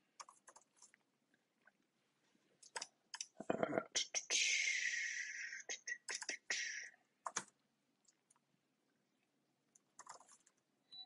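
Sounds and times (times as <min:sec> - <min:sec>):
keyboard keystrokes: 0:10.0 - 0:10.6.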